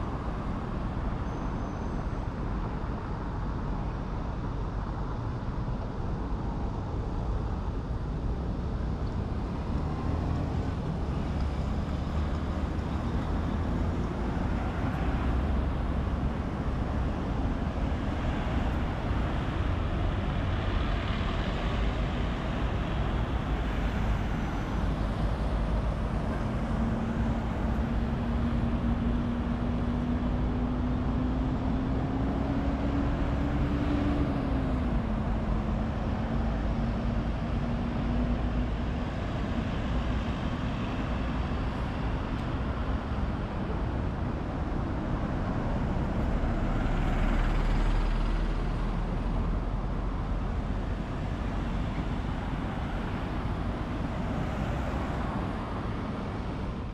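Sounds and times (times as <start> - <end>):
traffic rumble: 0.0 - 56.9.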